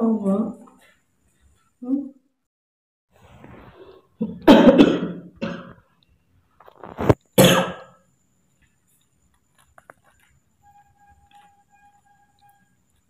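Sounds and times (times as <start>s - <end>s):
person coughing: 4.2s - 5.8s, 7.4s - 7.9s.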